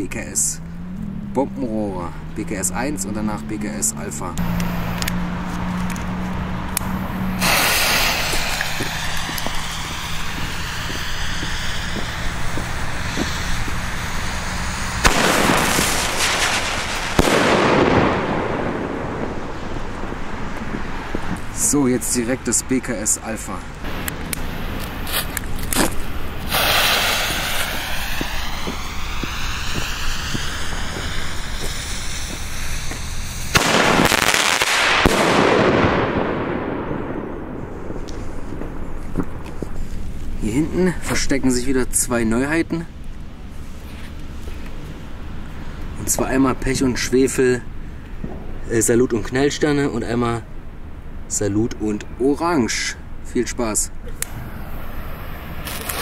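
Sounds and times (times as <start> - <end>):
firework fuse hissing: 4.4 - 35.8, 37.6 - 48.6, 54.0 - 56.0.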